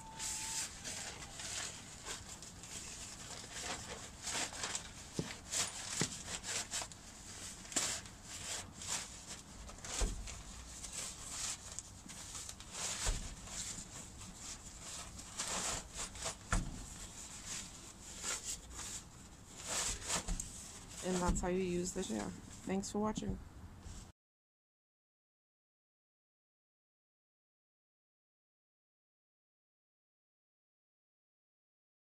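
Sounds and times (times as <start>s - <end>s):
nylon fabric rustling and scraping: 0.0s - 22.8s.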